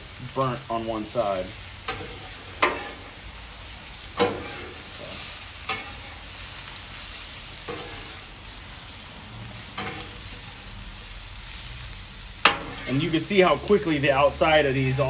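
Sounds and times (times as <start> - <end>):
sausages and onions sizzling: 0.0 - 15.0
metal spatula scraping griddle: 1.8 - 3.4, 4.0 - 6.8, 7.6 - 10.9, 11.5 - 15.0.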